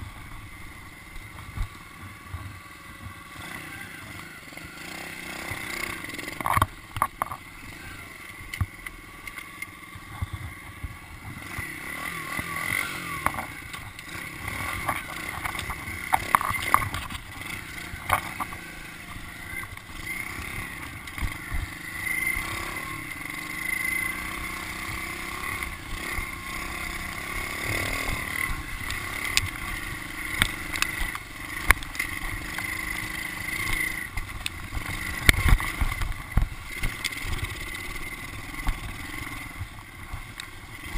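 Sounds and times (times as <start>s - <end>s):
pit bike engine under load: 0.0s - 40.9s.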